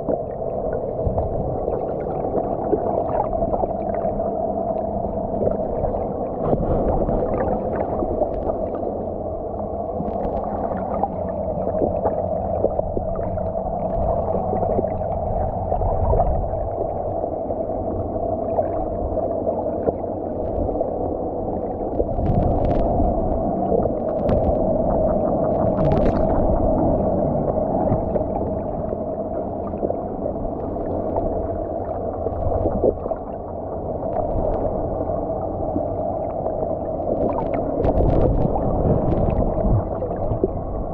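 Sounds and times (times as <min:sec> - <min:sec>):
low rumble: 0:00.0 - 0:40.9
underwater clicks and gurgles: 0:00.0 - 0:40.9
underwater droning hum: 0:00.0 - 0:40.9.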